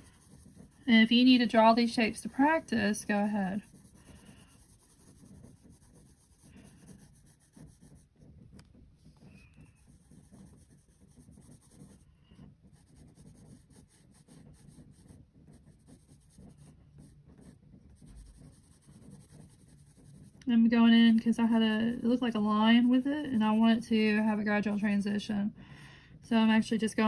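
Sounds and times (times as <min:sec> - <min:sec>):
pencil scratching on paper: 0:00.0 - 0:25.3.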